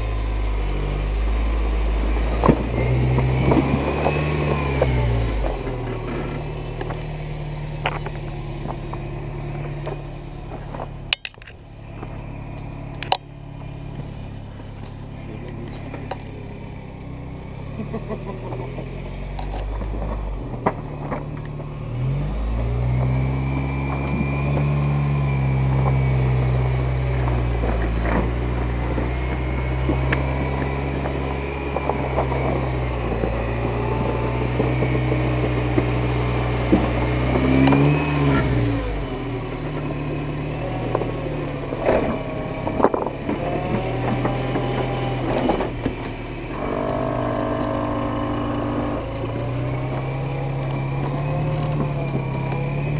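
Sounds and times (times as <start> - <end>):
truck engine revving under load: 0.0 - 52.9.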